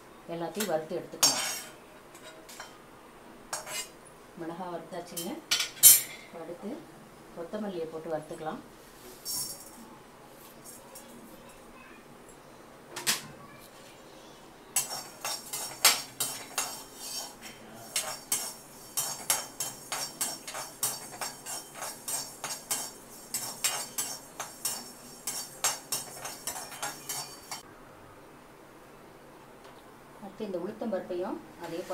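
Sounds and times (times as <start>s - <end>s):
metal spoon clinking and scraping pan: 0.6s - 2.8s, 3.5s - 4.0s, 5.1s - 6.3s, 14.8s - 27.6s.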